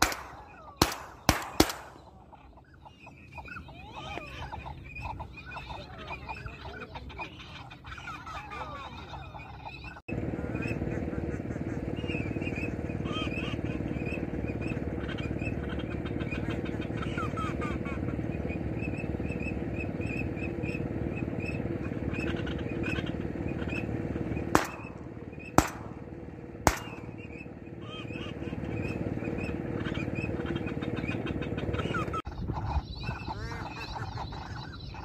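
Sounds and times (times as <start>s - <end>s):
shotgun shots: 0.0s - 2.2s, 24.5s - 27.4s
bird calls: 0.0s - 35.0s.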